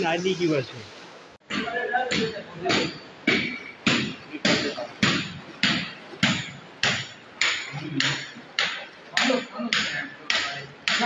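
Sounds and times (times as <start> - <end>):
footsteps splashing through water: 3.4 - 11.0.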